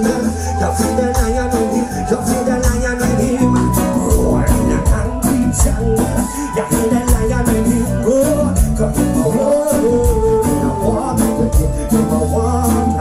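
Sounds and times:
live reggae band playing: 0.0s - 13.0s
man singing: 0.0s - 13.0s.

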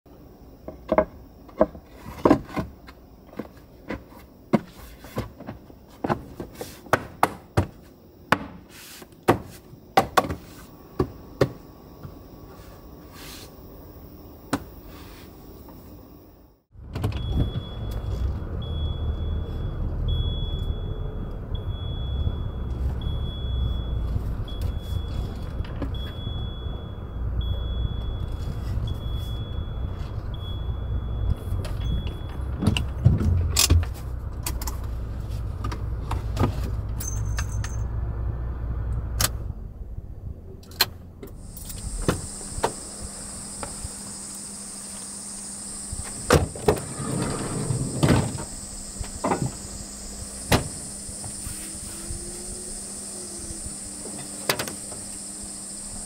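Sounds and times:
dashboard warning chime beeping: 17.2s - 25.4s, 26.0s - 33.0s
car engine running: 41.2s - 56.0s.

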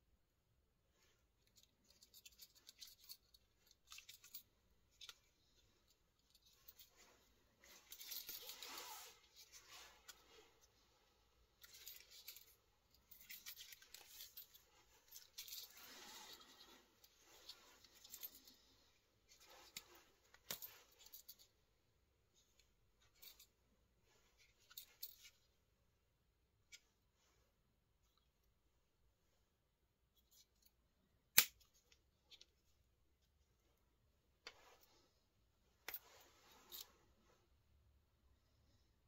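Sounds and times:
pocket knife handling scrapes: 7.6s - 10.5s.

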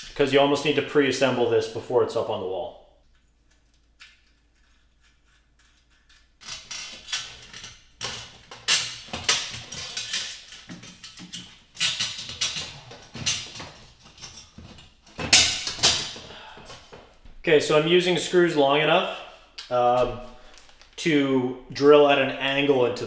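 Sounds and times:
metal bracket scraping and rustling: 5.6s - 16.3s.

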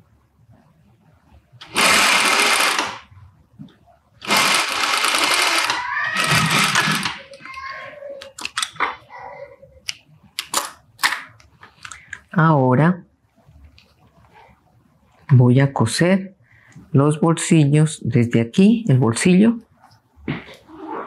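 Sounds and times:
sewing machine stitching: 1.6s - 3.0s, 4.2s - 7.2s.

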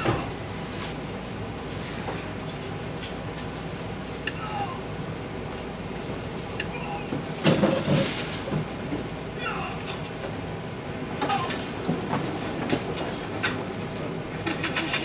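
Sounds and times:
cardboard boxes rustling and scraping: 7.6s - 8.8s.

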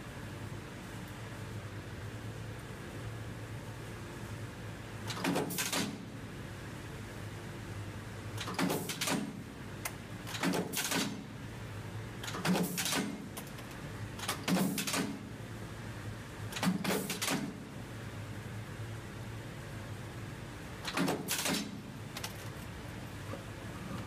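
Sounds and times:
punch press metallic clanks: 14.2s - 15.2s.

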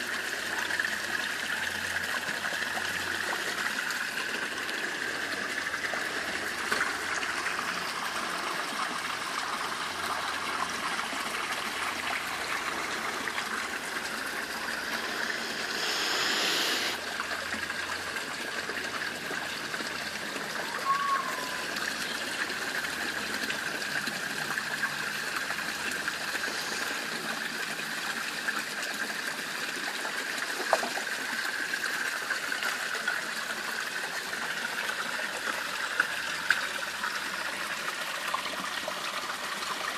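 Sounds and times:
water splashing into pond: 0.0s - 39.9s
rush of noise: 14.4s - 17.0s.

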